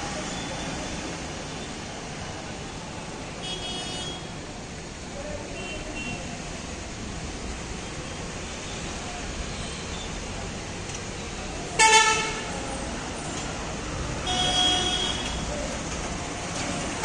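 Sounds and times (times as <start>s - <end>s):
town traffic rumble: 0.0s - 17.0s
vehicle horns honking: 11.8s - 12.5s, 14.2s - 15.4s.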